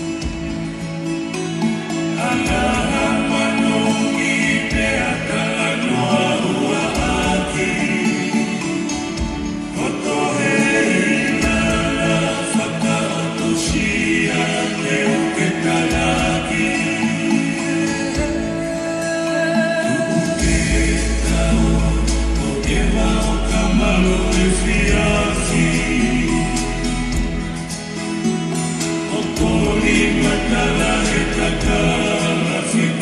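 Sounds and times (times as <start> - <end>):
group of voices singing in harmony: 0.0 - 33.0
deep bass notes: 20.4 - 27.8, 29.3 - 32.2.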